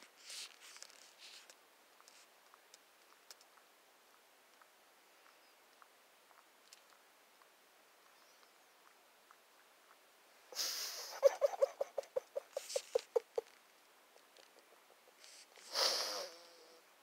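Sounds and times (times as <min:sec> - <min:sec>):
rustling: 0:00.0 - 0:03.6, 0:10.7 - 0:15.8.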